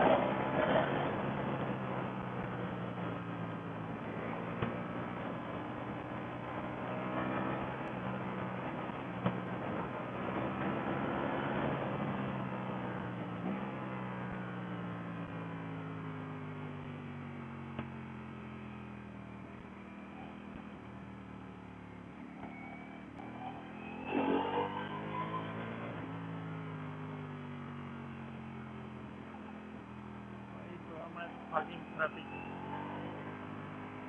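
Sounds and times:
motorcycle engine revving: 0:00.0 - 0:15.4, 0:23.2 - 0:26.7, 0:28.0 - 0:34.0.

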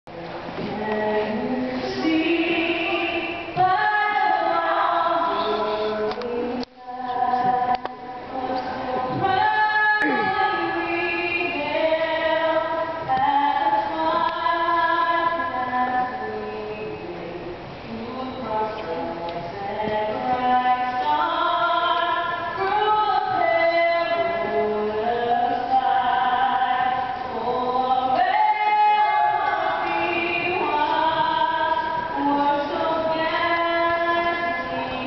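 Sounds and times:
woman singing solo: 0:08.3 - 0:35.0.

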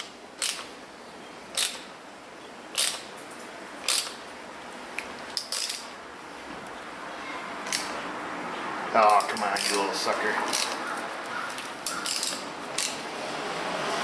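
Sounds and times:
ratchet clicks: 0:00.0 - 0:00.7, 0:01.5 - 0:01.9, 0:02.7 - 0:03.1, 0:03.8 - 0:04.2, 0:05.0 - 0:05.9, 0:10.5 - 0:10.8, 0:11.4 - 0:13.0.

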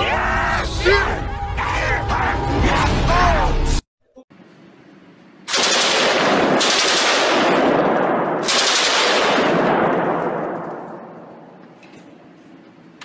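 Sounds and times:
machine gun firing rapid bursts: 0:05.5 - 0:09.8.

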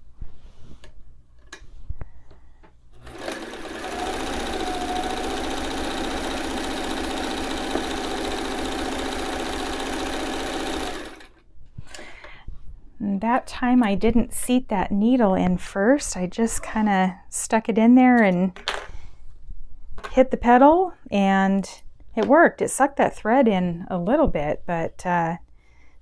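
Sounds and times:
sewing machine stitching: 0:03.0 - 0:11.4.

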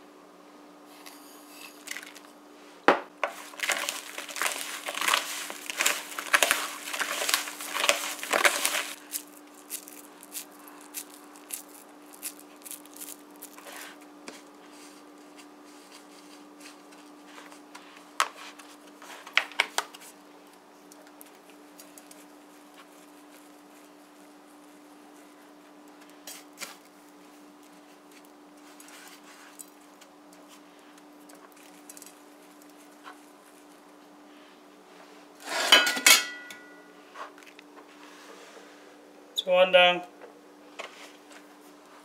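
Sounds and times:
hands squishing sticky pulp: 0:03.3 - 0:14.0.

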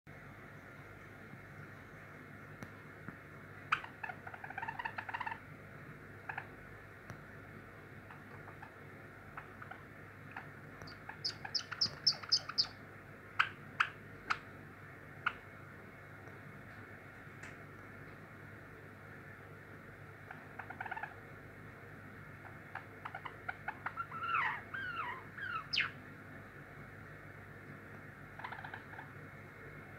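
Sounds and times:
high piping bird notes: 0:08.1 - 0:12.8, 0:22.7 - 0:26.0
sharp bird clicks: 0:09.4 - 0:12.7
sparrow warbled chirps: 0:09.4 - 0:12.8, 0:22.7 - 0:26.0.

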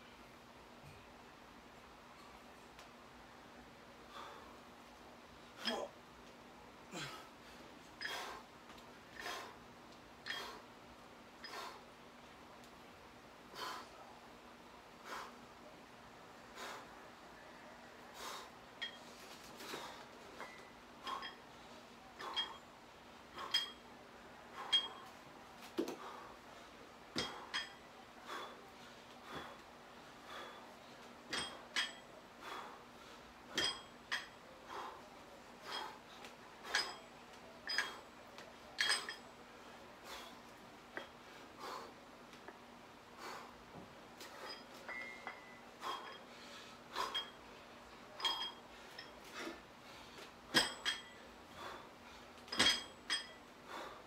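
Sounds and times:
heavy breaths: 0:06.9 - 0:10.8, 0:11.4 - 0:12.0, 0:13.4 - 0:14.2, 0:14.9 - 0:15.7, 0:16.4 - 0:38.2, 0:38.8 - 0:54.0
dumbbells clinking: 0:07.9 - 0:08.4, 0:10.2 - 0:10.6, 0:11.4 - 0:11.8, 0:18.8 - 0:21.6, 0:22.2 - 0:26.3, 0:27.1 - 0:28.6, 0:29.2 - 0:29.6, 0:30.2 - 0:32.8, 0:33.5 - 0:35.0, 0:35.6 - 0:42.6, 0:43.2 - 0:49.6, 0:50.4 - 0:51.8, 0:52.4 - 0:54.0.

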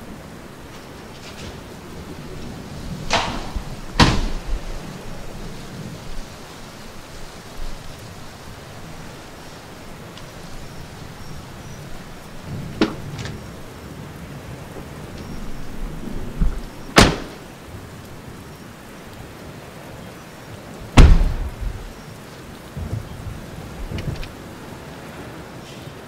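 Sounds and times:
rain falling: 0:00.0 - 0:26.0
sharp knocks: 0:03.1 - 0:04.5, 0:21.0 - 0:21.9
car door shutting: 0:21.0 - 0:21.5.

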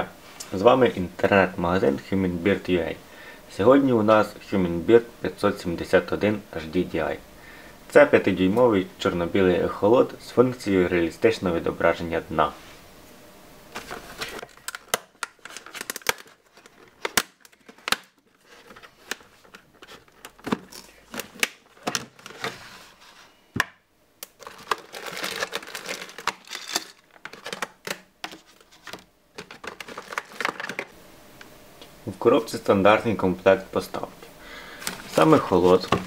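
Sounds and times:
plastic packaging crinkling: 0:13.8 - 0:22.7, 0:24.2 - 0:31.0, 0:34.7 - 0:36.0.

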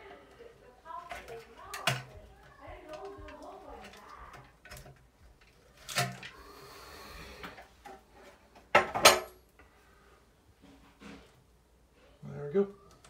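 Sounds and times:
metal fan housing clicks and rattles: 0:00.9 - 0:02.2.

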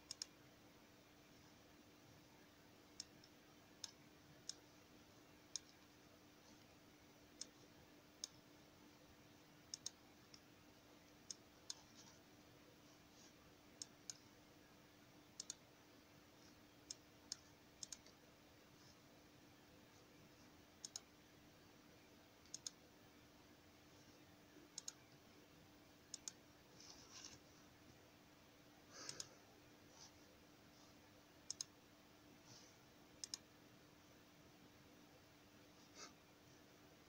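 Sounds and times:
computer mouse clicking: 0:00.0 - 0:00.4, 0:02.8 - 0:04.8, 0:05.4 - 0:08.4, 0:09.6 - 0:10.5, 0:11.1 - 0:12.2, 0:13.8 - 0:14.3, 0:15.4 - 0:15.7, 0:16.4 - 0:18.2, 0:20.8 - 0:21.1, 0:22.4 - 0:22.8, 0:24.7 - 0:25.2, 0:26.1 - 0:27.4, 0:28.9 - 0:29.4, 0:31.4 - 0:31.8, 0:33.2 - 0:33.5
faint steady hum: 0:00.0 - 0:37.0.

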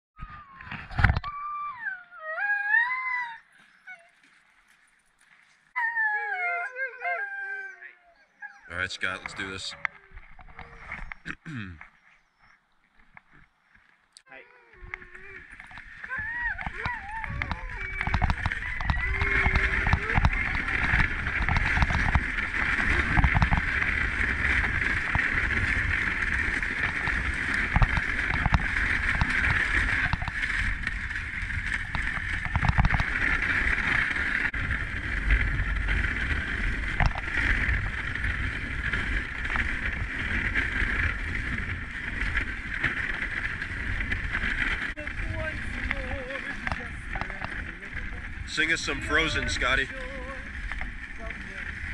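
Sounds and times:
wind buffeting microphone: 0:14.7 - 0:51.9
sled knocking: 0:14.8 - 0:51.9
sled runners hissing over snow: 0:15.0 - 0:51.9.

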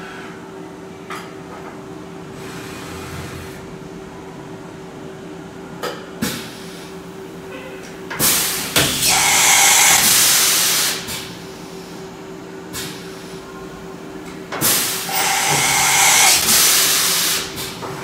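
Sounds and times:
loud air hiss: 0:08.2 - 0:11.4, 0:14.6 - 0:17.8
steady machine hum: 0:08.9 - 0:10.8, 0:14.9 - 0:17.6.

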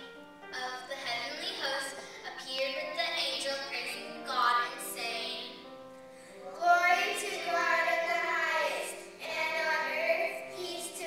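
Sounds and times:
musical accompaniment: 0:00.0 - 0:11.0
children singing: 0:06.5 - 0:11.0.

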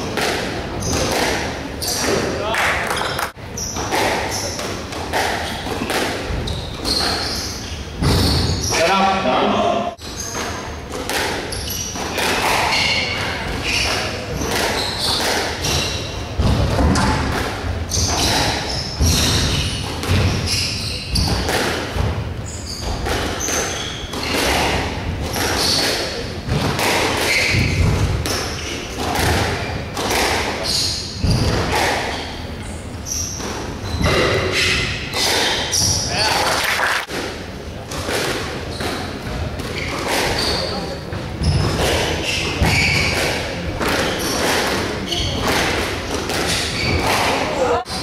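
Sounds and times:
racket striking squash ball: 0:00.0 - 0:08.9, 0:10.0 - 0:32.5, 0:33.1 - 0:36.3, 0:37.0 - 0:40.8, 0:41.4 - 0:47.5
shoes squeaking on wooden floor: 0:05.4 - 0:09.0, 0:11.4 - 0:17.3, 0:17.9 - 0:36.4, 0:38.7 - 0:43.4, 0:46.3 - 0:48.0.

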